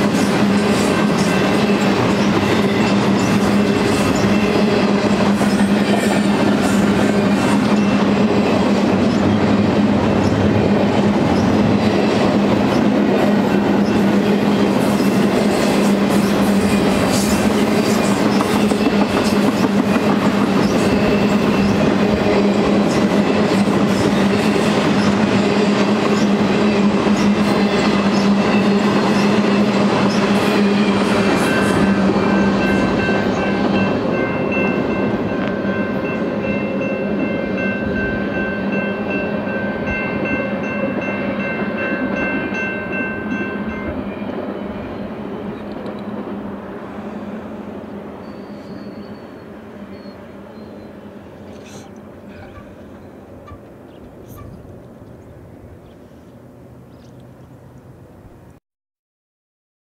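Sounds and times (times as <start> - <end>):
steel wheels on rails: 0.0 - 47.4.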